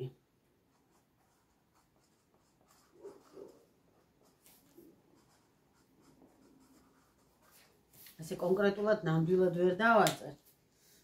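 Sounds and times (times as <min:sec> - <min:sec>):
marker scratching on cardboard: 0:00.6 - 0:07.8.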